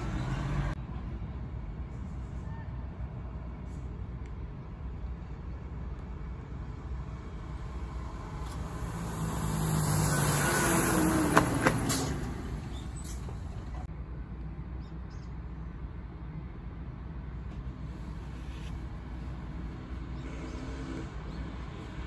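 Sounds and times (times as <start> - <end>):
vehicle passing on asphalt: 5.0 - 13.9.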